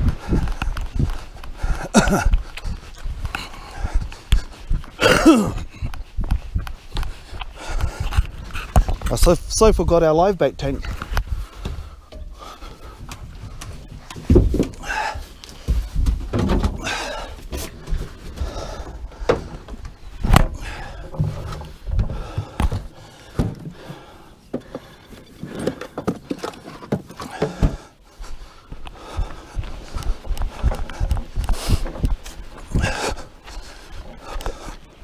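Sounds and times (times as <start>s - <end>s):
knocks and thuds of gear: 13.0s - 27.9s.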